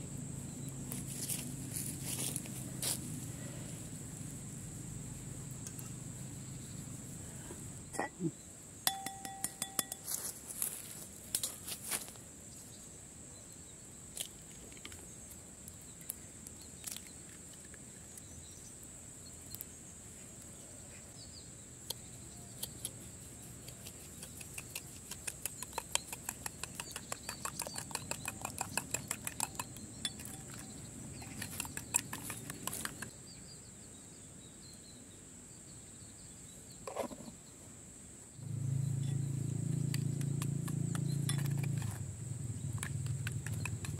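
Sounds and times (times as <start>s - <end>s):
spoon beating eggs clinking: 8.9s - 10.1s, 23.9s - 33.1s, 39.9s - 42.0s, 42.8s - 43.9s
eggs cracking on bowl rim: 24.3s - 33.1s, 42.7s - 43.9s.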